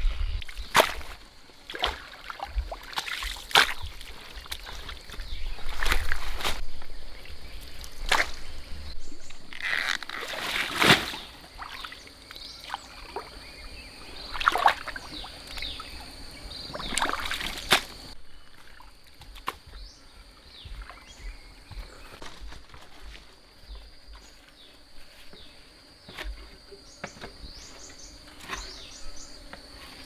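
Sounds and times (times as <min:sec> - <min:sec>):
water sloshing and splashing: 0:00.4 - 0:08.7, 0:09.5 - 0:13.5, 0:14.1 - 0:19.6.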